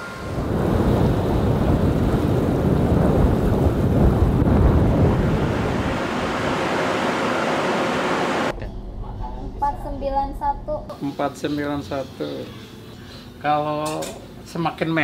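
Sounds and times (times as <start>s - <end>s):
wind buffeting microphone: 0.0s - 7.1s
waves breaking along hull: 0.0s - 8.5s
wind rushing: 0.0s - 8.5s.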